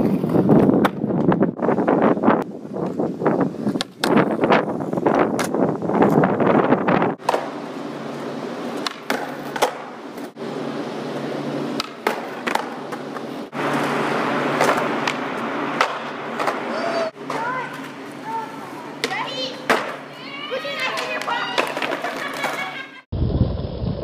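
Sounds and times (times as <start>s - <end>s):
skateboard wheels rolling on concrete: 0.0s - 24.0s
skateboard tail clacks: 3.6s - 4.4s, 8.7s - 10.4s, 11.7s - 18.0s.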